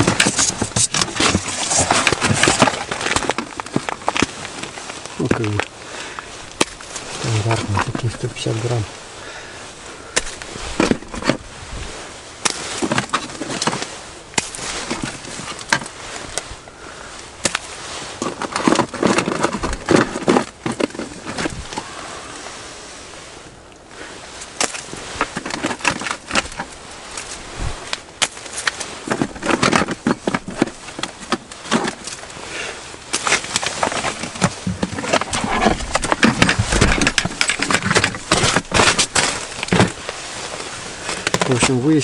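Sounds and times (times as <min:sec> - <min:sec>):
rustling: 0:00.0 - 0:42.0.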